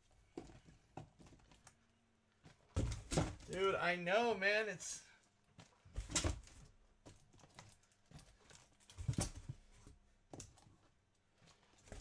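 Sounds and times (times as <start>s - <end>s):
cardboard boxes thumping down: 2.8s - 3.5s.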